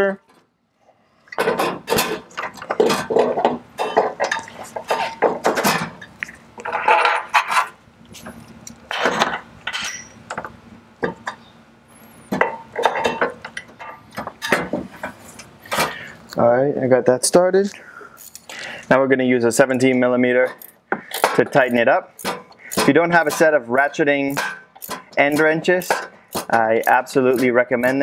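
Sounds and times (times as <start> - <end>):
metal hardware clinking: 8.9 - 11.4, 12.3 - 14.8.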